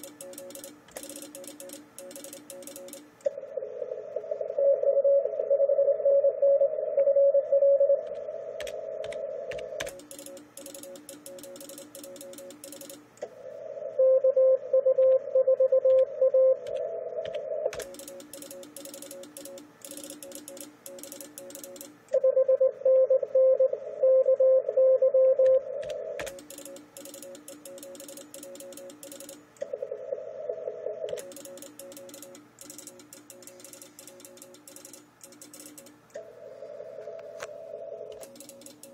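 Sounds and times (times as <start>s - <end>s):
faint morse code: 0.0s - 3.0s, 4.2s - 13.0s, 13.9s - 25.8s
computer keyboard typing: 0.0s - 3.2s, 8.1s - 13.1s, 15.8s - 22.0s, 25.3s - 29.5s, 31.1s - 36.0s, 38.1s - 38.9s
morse code tones: 14.0s - 16.8s, 22.2s - 25.8s.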